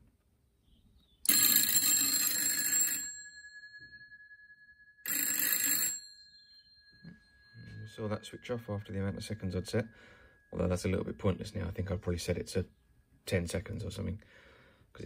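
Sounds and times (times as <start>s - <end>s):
telephone bell ringing: 1.3s - 10.7s.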